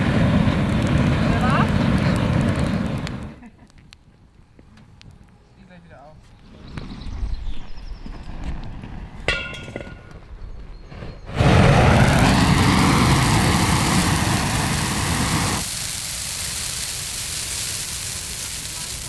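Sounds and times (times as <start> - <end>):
gas burner torch roaring: 0.0 - 3.7, 10.9 - 19.0
burning tree rushing: 0.0 - 3.8, 6.4 - 19.0.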